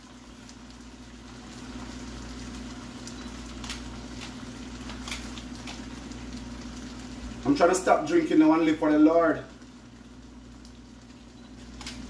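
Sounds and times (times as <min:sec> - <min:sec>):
sauce bubbling in a pan: 0:00.0 - 0:12.0.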